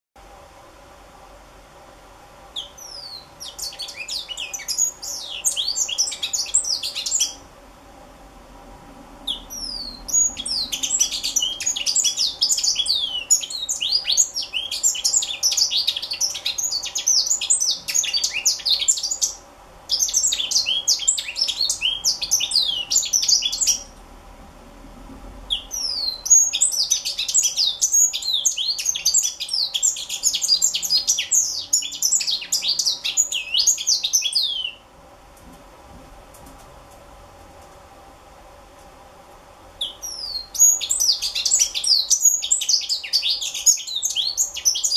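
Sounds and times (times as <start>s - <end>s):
bird twittering song: 2.5s - 7.4s, 9.2s - 24.0s, 25.5s - 34.8s, 39.8s - 44.9s.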